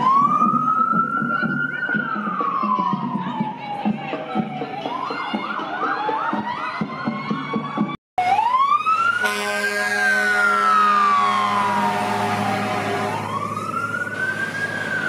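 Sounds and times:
fire engine siren wailing: 0:00.0 - 0:15.0
steady horn: 0:09.2 - 0:13.3
truck engine: 0:10.3 - 0:15.0.

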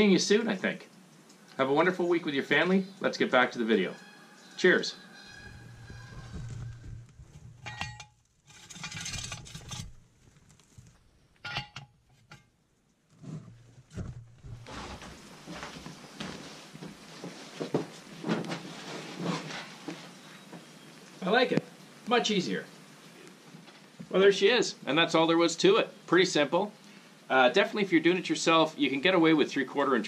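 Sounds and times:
boots climbing onto tractor: 0:05.6 - 0:12.4, 0:13.1 - 0:18.6
wrench clinking on metal bolts: 0:11.4 - 0:12.4.

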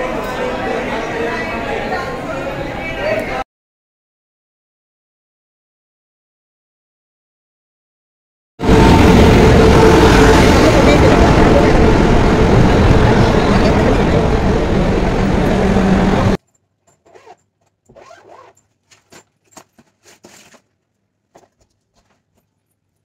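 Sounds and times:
passenger train rumbling past: 0:08.6 - 0:16.4.

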